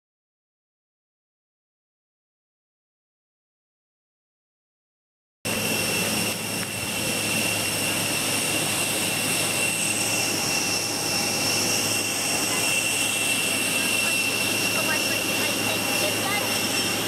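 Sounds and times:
jet engine whine and hiss: 5.5 - 17.0.

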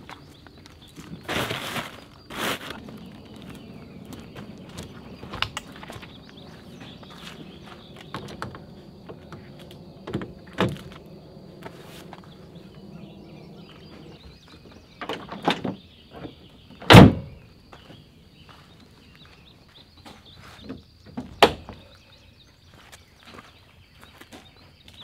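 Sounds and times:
gear knocks and clunks: 2.8 - 17.4
loud thump: 16.9 - 17.4.

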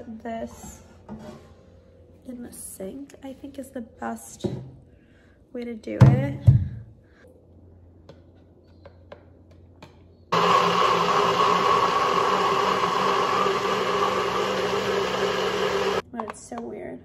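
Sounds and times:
blender running: 10.3 - 16.0.

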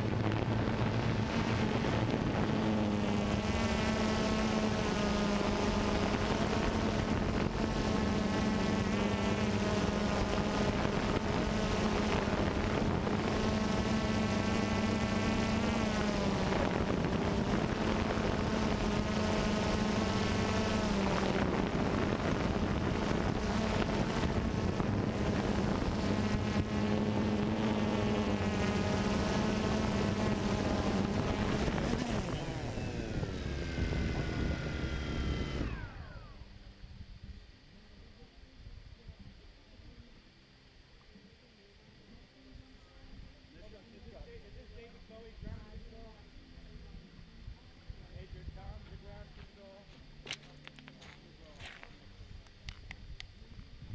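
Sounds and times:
drone propellers buzzing: 0.0 - 37.0.

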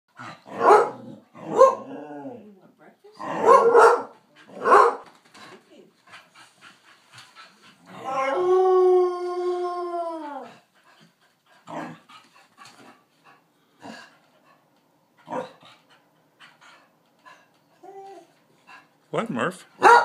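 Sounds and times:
dog barking: 0.5 - 1.9, 3.3 - 5.0, 19.8 - 20.0
dog howling: 7.9 - 10.6.

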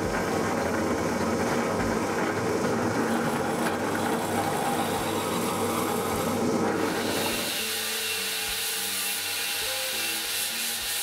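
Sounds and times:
drill press running: 0.0 - 11.0
hole saw boring into wood: 3.1 - 11.0.

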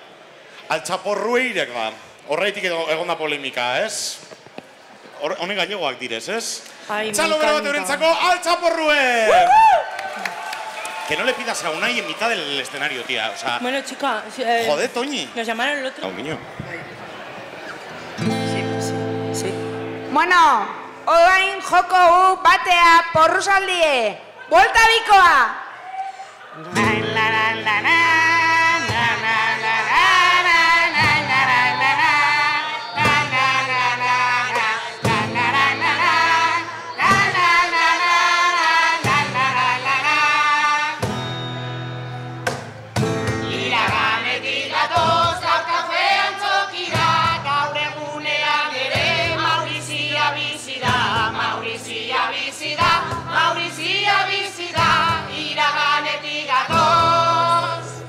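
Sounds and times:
acoustic guitar: 16.5 - 21.1, 26.2 - 58.0
group singing in chorus: 26.6 - 41.2, 43.3 - 58.0
cajon drumming: 26.8 - 41.5, 42.3 - 57.8.

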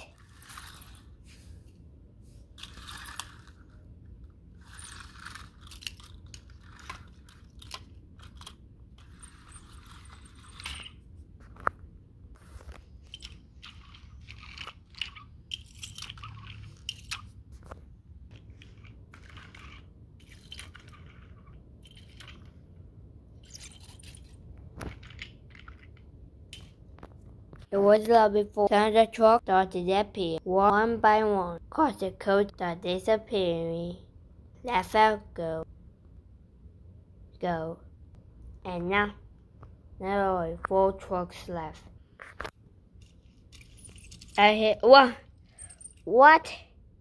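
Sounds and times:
toy trains scraping on carpet: 0.0 - 3.9, 4.5 - 11.0, 12.3 - 15.3, 17.6 - 22.5.

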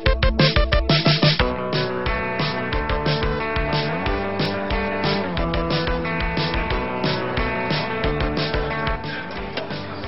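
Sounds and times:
music with steady beat and held chords: 0.0 - 10.0.

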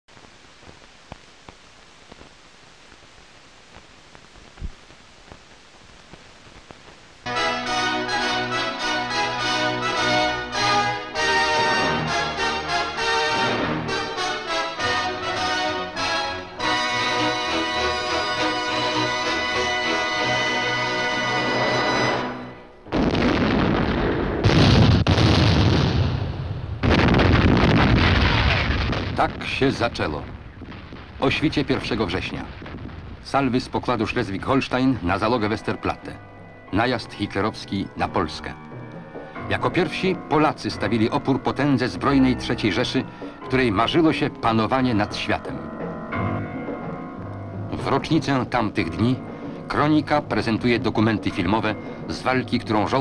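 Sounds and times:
film soundtrack hiss: 0.0 - 53.0
clicks and pops: 0.2 - 3.1, 3.7 - 7.1
music: 7.3 - 22.9, 34.0 - 53.0
shell explosions: 22.8 - 33.7
heavy naval gunfire: 22.9 - 29.7.

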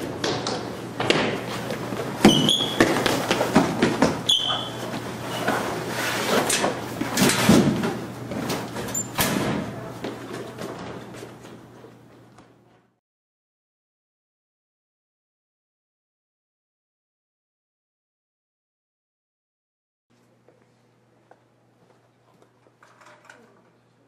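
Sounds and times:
hurried footsteps on hard floor: 1.8 - 4.3
short high squeaks: 2.2 - 2.8, 4.3 - 5.5.

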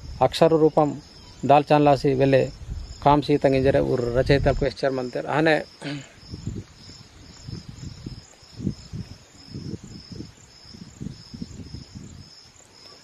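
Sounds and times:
insect chirping: 0.0 - 13.0
low rumbling bumps: 2.5 - 4.8.

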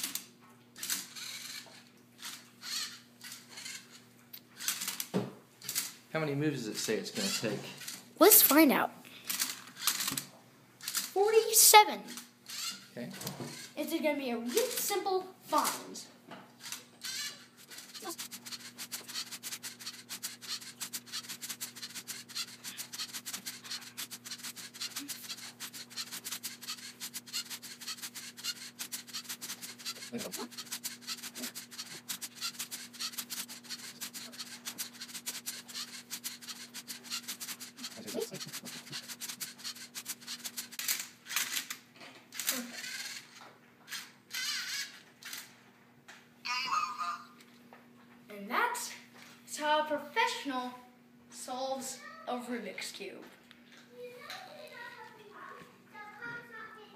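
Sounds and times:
faint motor hum: 0.0 - 56.9
plastic parts clicking and rattling: 16.6 - 45.5.

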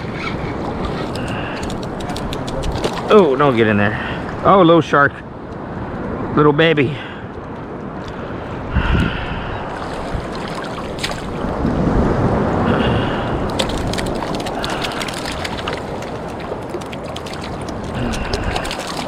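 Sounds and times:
surf water sloshing: 0.0 - 4.8, 9.4 - 19.0
sharp splashes and crackles: 0.7 - 3.8, 9.8 - 11.7, 13.1 - 19.0
fish thrashing and splashing: 1.0 - 3.4, 9.8 - 11.6, 13.5 - 19.0
wind on microphone: 7.8 - 19.0.

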